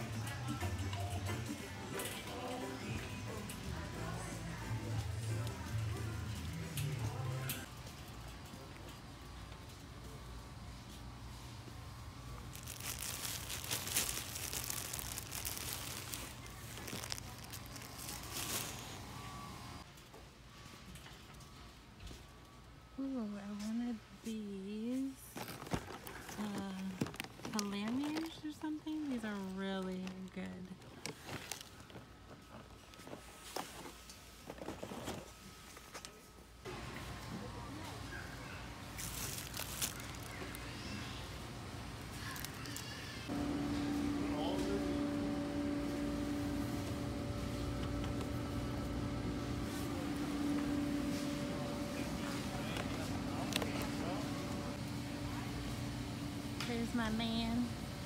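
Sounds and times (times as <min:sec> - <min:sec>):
low steady hum: 0:00.0 - 0:19.9, 0:21.0 - 0:58.0
plastic bread bag crinkling: 0:12.3 - 0:19.4, 0:25.2 - 0:32.0, 0:38.8 - 0:41.2.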